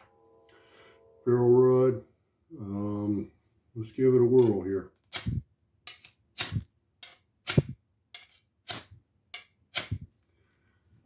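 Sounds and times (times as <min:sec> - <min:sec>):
knife scraping ferro rod: 0:05.1 - 0:10.0.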